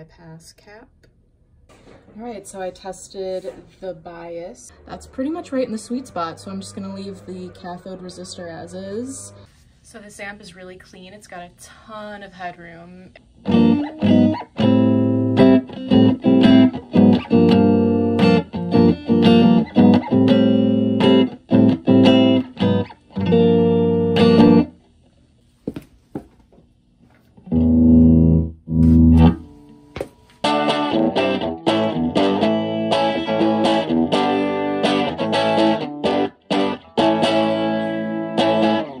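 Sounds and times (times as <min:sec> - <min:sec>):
electric guitar through tube amp: 0:04.6 - 0:09.5, 0:13.2 - 0:24.8, 0:27.5 - 0:29.8, 0:30.4 - 0:39.0.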